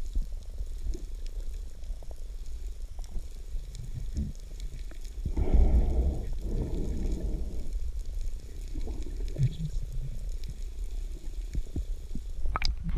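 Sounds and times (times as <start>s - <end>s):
underwater water swish: 0.0s - 12.9s.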